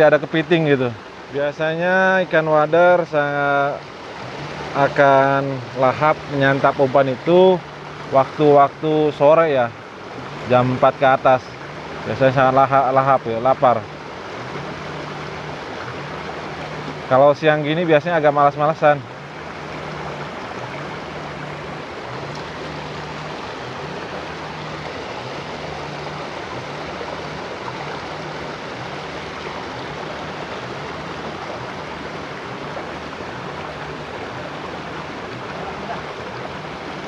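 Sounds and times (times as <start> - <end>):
stream rushing over stones: 0.0 - 37.0.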